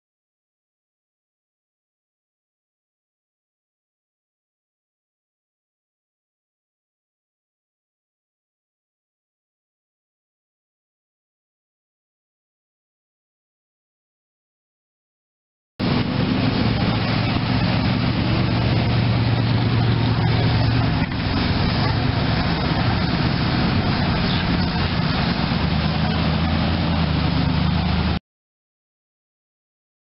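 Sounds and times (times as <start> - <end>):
car engine running low: 15.8 - 28.2.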